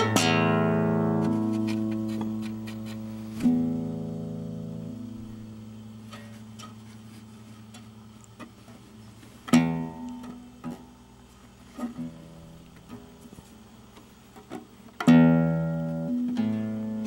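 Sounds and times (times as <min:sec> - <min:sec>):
guitar strings plucked: 0:00.0 - 0:06.7, 0:09.4 - 0:11.0, 0:15.0 - 0:17.0.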